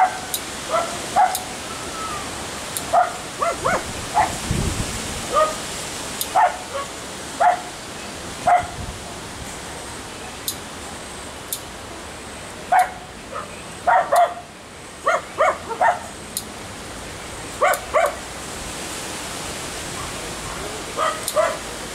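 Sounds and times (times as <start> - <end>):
dog barking: 0.0 - 1.5, 2.9 - 4.4, 5.3 - 5.6, 6.3 - 7.7, 8.4 - 8.8, 12.7 - 16.1, 17.6 - 18.2, 21.0 - 21.7
dog yipping: 0.0 - 2.2, 2.9 - 4.4, 6.4 - 7.7, 8.5 - 8.8, 12.7 - 14.4, 15.1 - 16.1, 17.6 - 18.2, 21.0 - 21.6.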